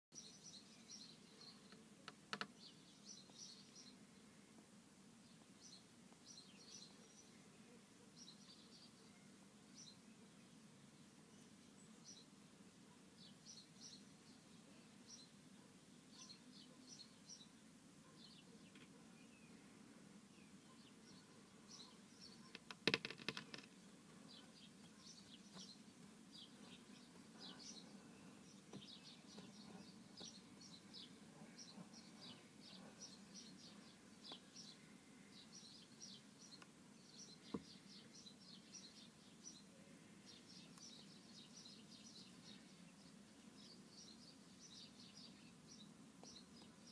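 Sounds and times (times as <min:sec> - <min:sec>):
small birds chirping: 0:00.1 - 0:46.9.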